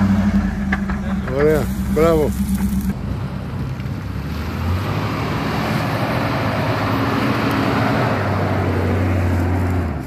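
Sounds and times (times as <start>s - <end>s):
car engine running: 0.0s - 4.8s.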